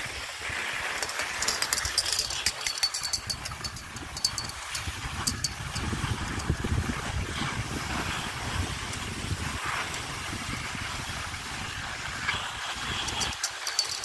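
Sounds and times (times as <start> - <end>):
skis sliding on snow: 0.0 - 1.4, 6.0 - 13.2
sharp high ticks: 1.3 - 6.6
wind buffeting microphone: 3.1 - 13.3.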